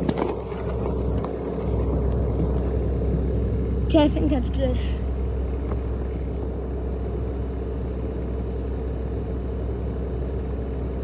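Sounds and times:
diesel engine droning: 0.0 - 11.0.

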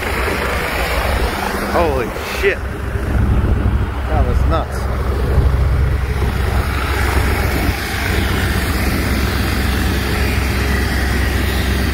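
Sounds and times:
wind buffeting microphone: 0.0 - 10.7
helicopter rotor and engine: 0.0 - 11.9.

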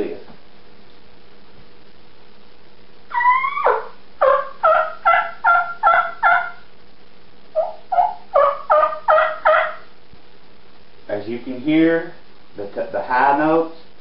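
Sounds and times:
turkey call yelps: 3.1 - 6.7, 7.6 - 9.9.

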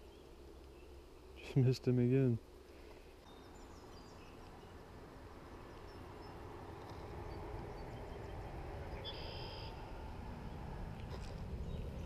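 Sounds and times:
birds chirping: 0.0 - 12.0
wind rumble on microphone: 6.6 - 12.0.

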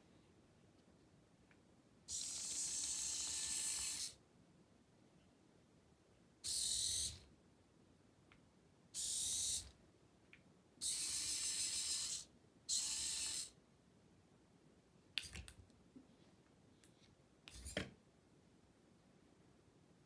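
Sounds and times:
small motors whirring: 2.1 - 4.2, 6.5 - 7.2, 9.0 - 9.7, 10.8 - 13.5.

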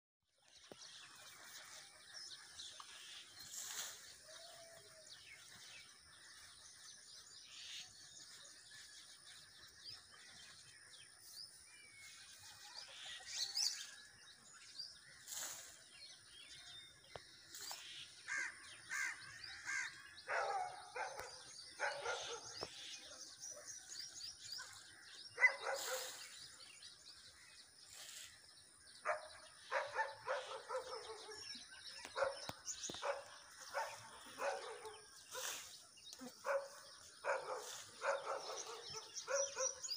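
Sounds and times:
small birds chirping: 0.3 - 39.9
harsh bird calls: 16.5 - 27.3.

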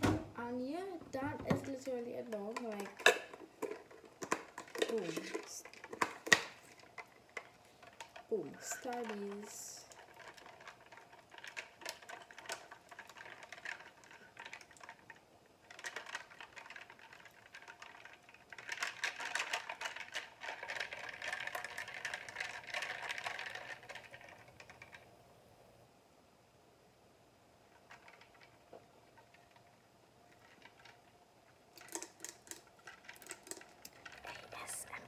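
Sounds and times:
straw rattling in plastic cup: 0.6 - 25.1, 27.7 - 35.0.

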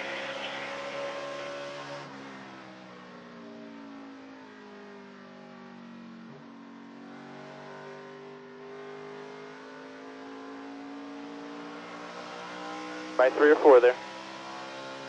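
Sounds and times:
race truck engine: 0.0 - 3.7, 7.2 - 15.0.

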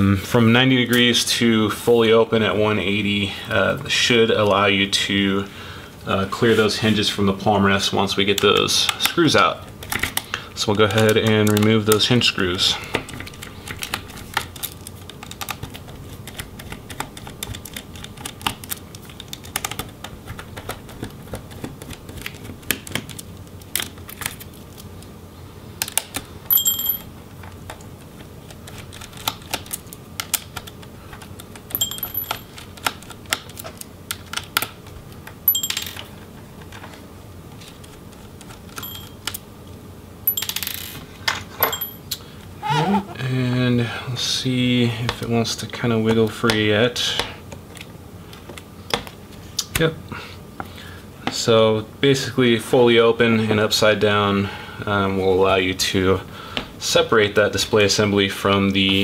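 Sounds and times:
small screw clinking: 26.5 - 27.1, 31.8 - 32.5, 35.5 - 36.1, 38.8 - 39.3, 40.3 - 41.0, 41.6 - 42.2.

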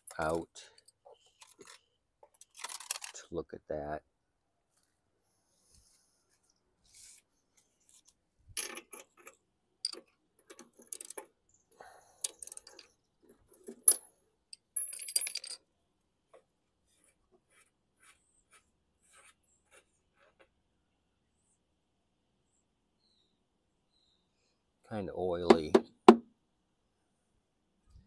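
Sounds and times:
metal tools clinking: 2.4 - 3.2, 8.6 - 11.3, 12.2 - 15.6.

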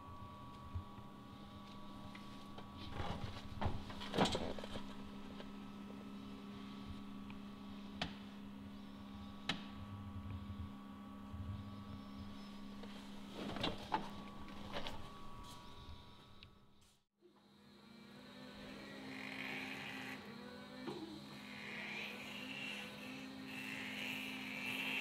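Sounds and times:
electric forklift hum: 0.0 - 16.8.

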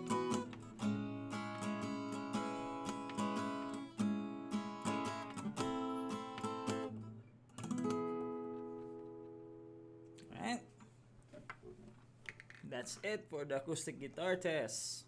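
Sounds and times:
acoustic guitar strumming chords: 0.0 - 10.1.

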